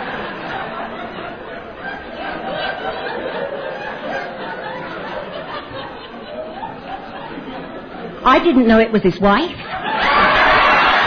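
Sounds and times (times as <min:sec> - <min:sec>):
audience laughing: 0:00.0 - 0:08.2, 0:09.6 - 0:11.0.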